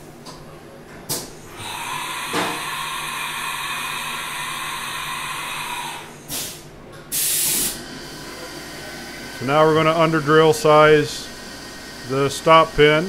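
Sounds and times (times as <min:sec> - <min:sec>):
short burst of hiss: 0:06.3 - 0:07.8.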